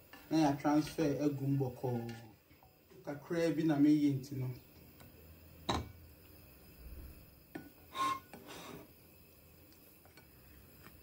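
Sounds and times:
utensil scraping cookware: 7.6s - 8.9s.

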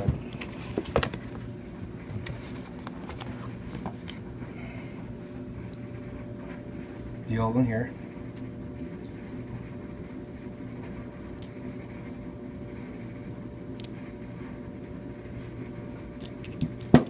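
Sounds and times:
steady low hum: 0.0s - 17.0s
small metal parts clicking: 16.2s - 17.0s.

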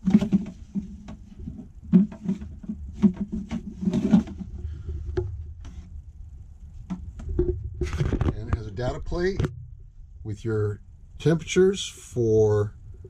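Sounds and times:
plastic divider knocks and clatters: 0.0s - 4.5s.

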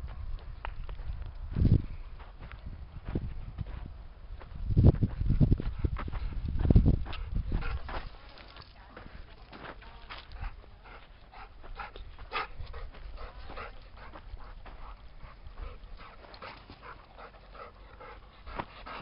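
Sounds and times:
dog panting: 5.6s - 8.2s, 10.3s - 19.0s.

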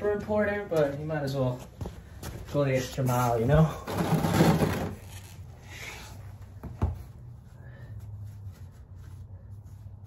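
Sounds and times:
cloth rag rubbing: 2.8s - 10.0s.

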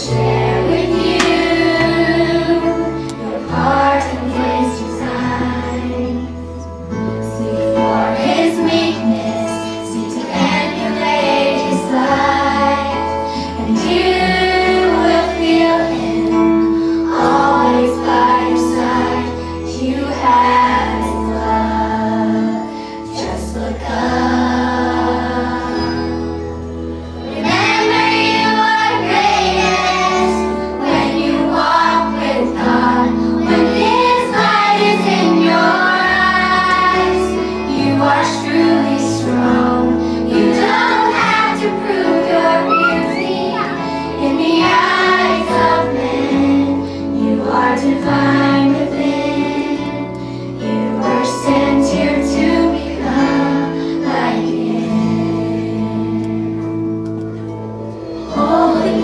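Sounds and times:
children's choir singing: 0.0s - 59.0s
instrumental accompaniment: 0.0s - 59.0s.

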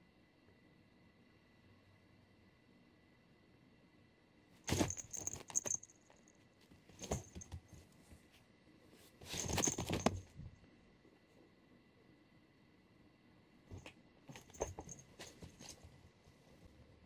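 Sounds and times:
cat scampering on floor mat: 6.6s - 8.4s, 9.0s - 10.5s.

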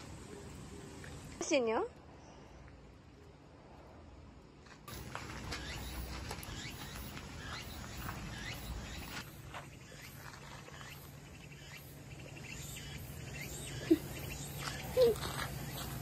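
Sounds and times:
insects chirping: 4.9s - 16.0s.

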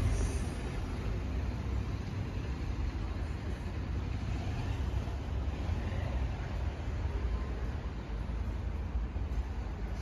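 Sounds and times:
low outdoor background rumble: 0.0s - 10.0s.

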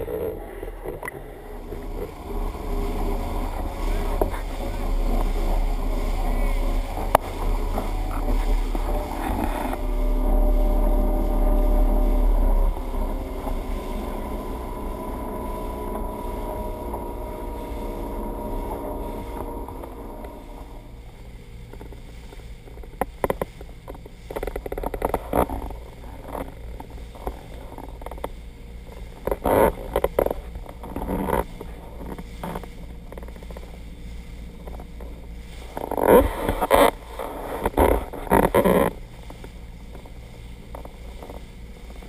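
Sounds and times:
motorboat engine running: 0.0s - 42.0s
rushing water: 0.8s - 33.3s.

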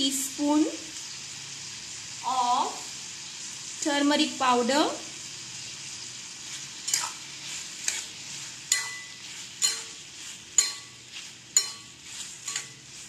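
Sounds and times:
frying sizzle in oil: 0.0s - 13.0s
metal spatula knocking on pan: 8.7s - 10.0s, 10.6s - 11.0s, 11.6s - 11.9s.

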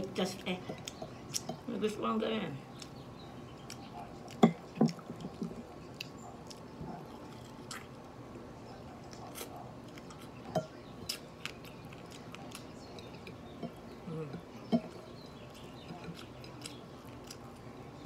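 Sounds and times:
person chewing: 2.7s - 8.2s, 8.9s - 17.8s.

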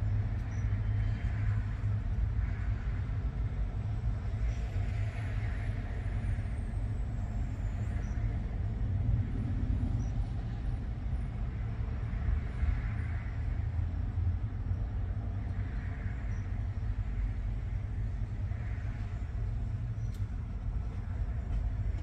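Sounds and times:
truck engines idling: 10.4s - 22.0s.

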